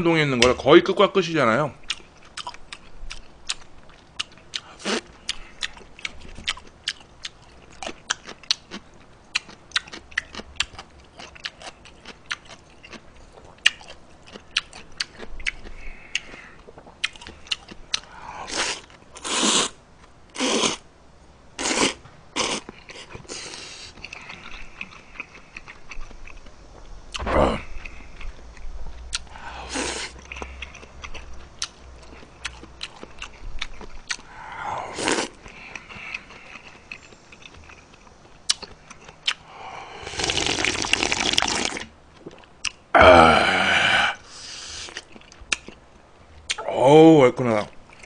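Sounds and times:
wet chewing and mouth clicks: 1.8 - 20.1, 21.6 - 34.4, 35.0 - 39.5, 40.1 - 42.8, 44.5 - 45.8
noodle slurps: 18.5 - 19.8, 40.0 - 41.9.

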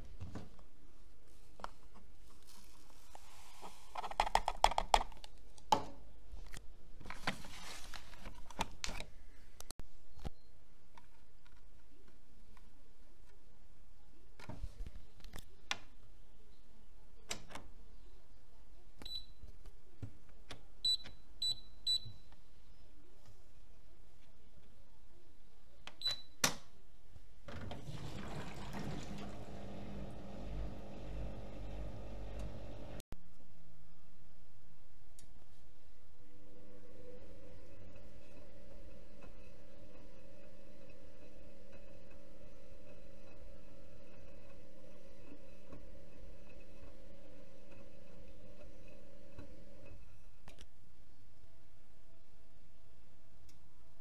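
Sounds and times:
water running into washing machine: 27.5 - 33.0
powder detergent pouring: 27.8 - 31.6.

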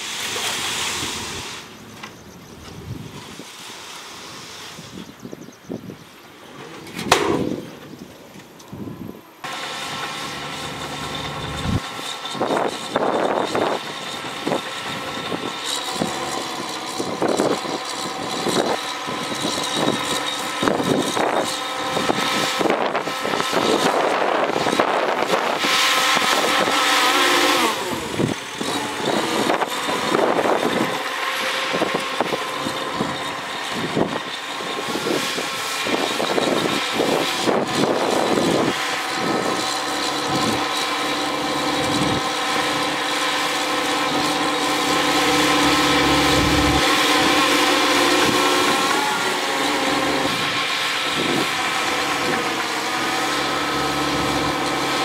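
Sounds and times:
rush of hiss: 0.0 - 1.9, 3.1 - 5.1
bulldozer diesel engine under load: 8.8 - 55.0.

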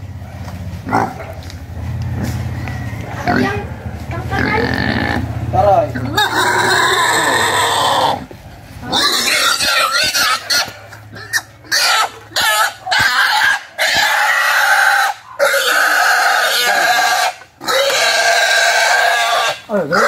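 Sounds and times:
pig squealing: 4.3 - 20.0.

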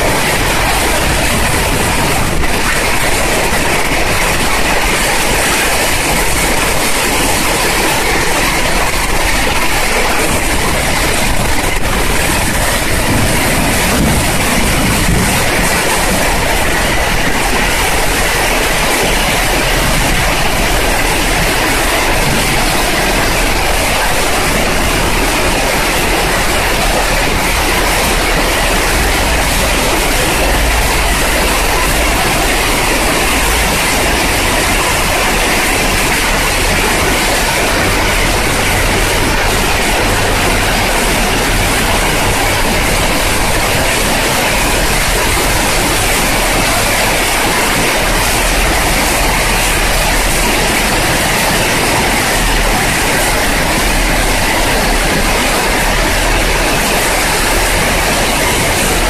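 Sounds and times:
heavy rain on pavement and trees: 0.0 - 59.0.

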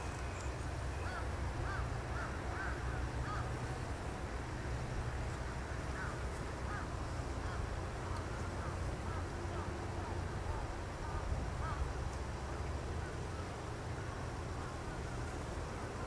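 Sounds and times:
crows cawing: 1.0 - 3.6, 6.0 - 9.7, 11.0 - 11.8.

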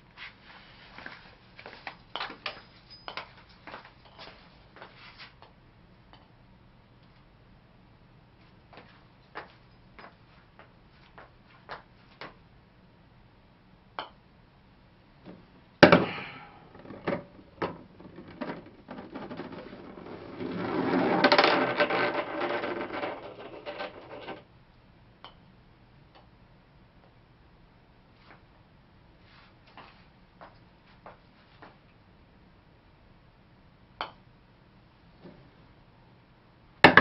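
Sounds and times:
ball rolling in plastic gutter: 16.8 - 24.4.

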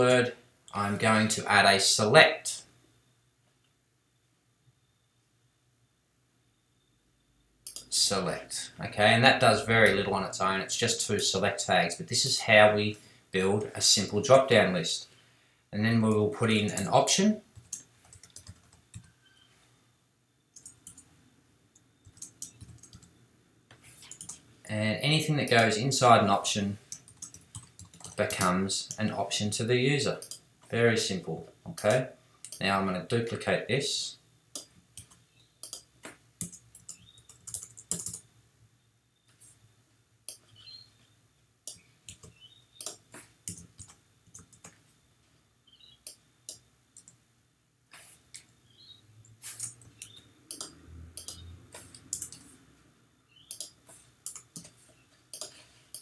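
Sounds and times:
computer keyboard keystrokes: 17.6 - 19.1, 20.6 - 21.0, 22.0 - 23.1, 34.6 - 38.2, 41.7 - 44.8, 49.6 - 52.5, 53.5 - 56.0.

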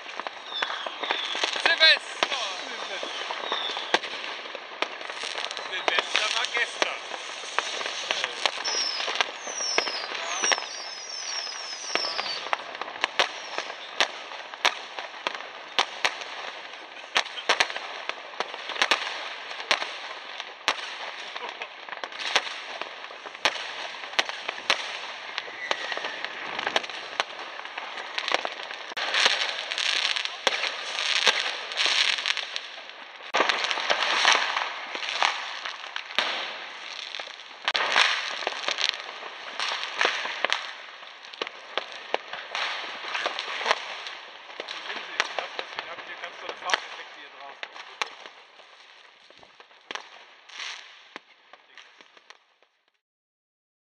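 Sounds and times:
fireworks bangs: 0.0 - 52.7
firecrackers crackling: 0.0 - 53.0.

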